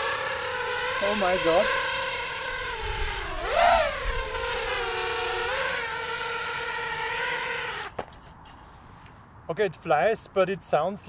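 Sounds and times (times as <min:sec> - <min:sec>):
drone motors whining: 0:00.0 - 0:08.1.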